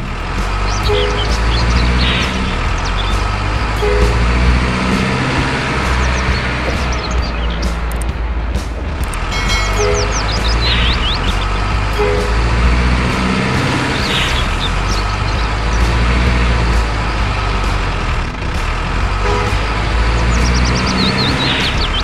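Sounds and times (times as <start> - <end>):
diesel truck engine rumbling: 0.0 - 22.0.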